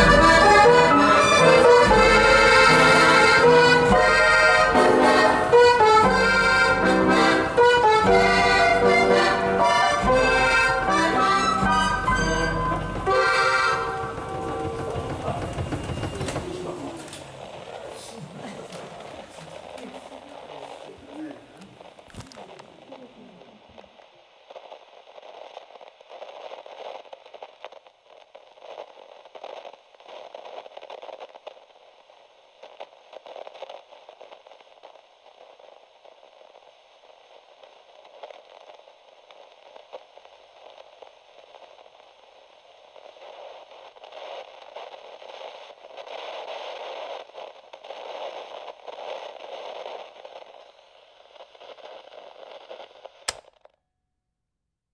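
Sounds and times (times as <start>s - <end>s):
static-like crackling: 0.0s - 53.8s
sharp click: 53.3s - 53.8s.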